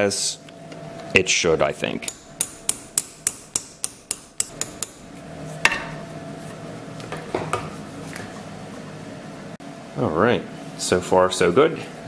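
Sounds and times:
hammer tapping on metal: 2.0s - 5.0s.

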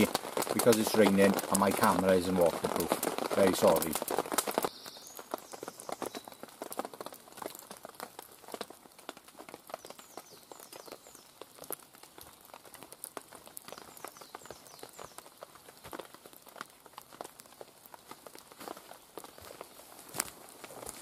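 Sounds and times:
footsteps on leaf litter: 0.0s - 4.9s, 15.4s - 21.0s
rain drips tapping: 0.0s - 21.0s.

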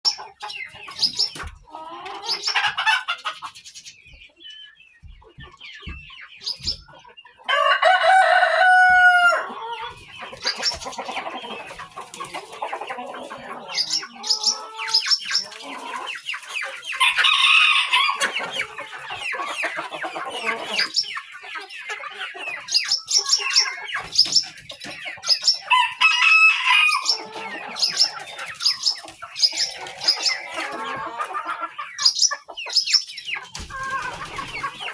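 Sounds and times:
chickens clucking: 0.0s - 34.9s
rooster crowing: 7.5s - 9.6s, 17.0s - 18.3s, 25.7s - 27.6s.

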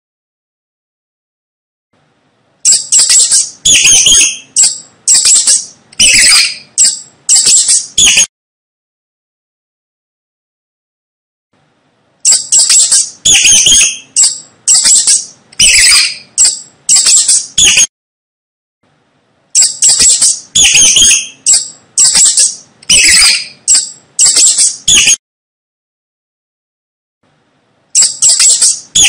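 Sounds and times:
mice squeaking: 2.6s - 8.3s, 12.2s - 17.9s, 19.5s - 25.2s, 27.9s - 29.0s.

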